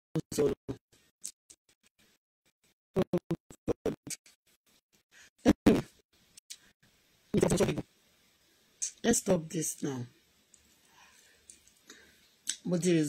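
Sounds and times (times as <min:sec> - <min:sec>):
person's voice choppy: 0:00.2 - 0:00.8, 0:03.0 - 0:04.2, 0:05.4 - 0:06.0, 0:07.4 - 0:07.8.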